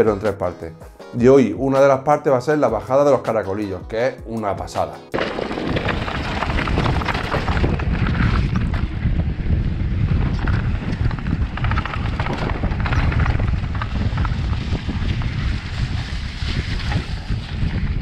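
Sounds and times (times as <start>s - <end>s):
tyres crunching over dirt: 5.2s - 17.2s
bike rattling over bumps: 5.2s - 18.0s
wind buffeting microphone: 5.2s - 18.0s.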